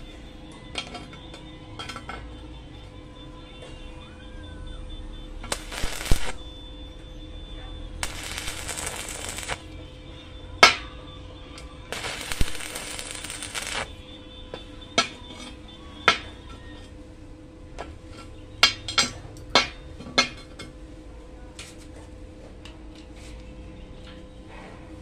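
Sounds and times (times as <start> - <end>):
tools clinking on metal: 0.8 - 2.3
welding arc crackling and hissing: 5.4 - 6.5, 8.0 - 9.9, 11.9 - 14.0.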